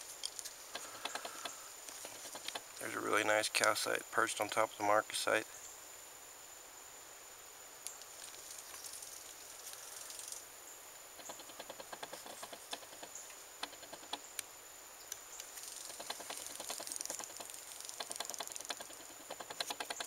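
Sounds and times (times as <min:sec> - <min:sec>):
rock handling clicks and taps: 0:00.2 - 0:02.9.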